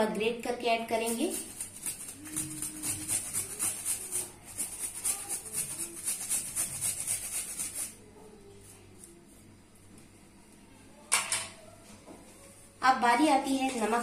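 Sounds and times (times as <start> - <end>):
ginger grated on metal grater: 1.0 - 8.0.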